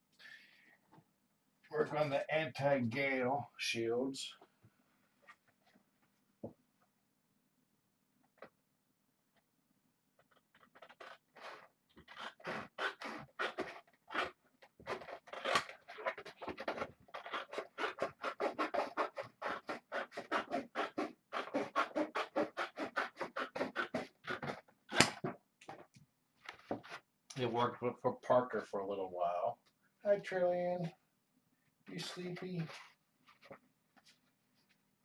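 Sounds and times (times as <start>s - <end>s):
scratching and rubbing posterboard: 10.3s - 24.6s.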